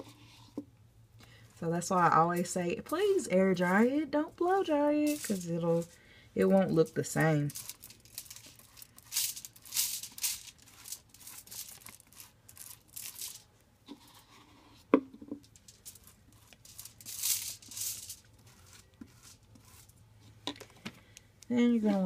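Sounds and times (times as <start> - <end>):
foil crinkling: 7.2 - 13.5
brush swishing through wet hair: 15.9 - 20.0.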